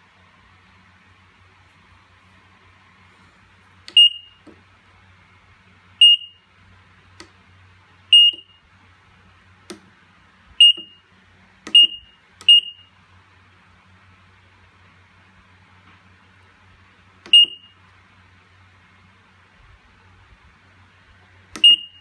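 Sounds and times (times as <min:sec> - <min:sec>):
kitchen timer beeps: 0:03.9 - 0:04.4, 0:08.2 - 0:08.5, 0:10.6 - 0:11.0, 0:17.3 - 0:17.7, 0:21.6 - 0:22.0.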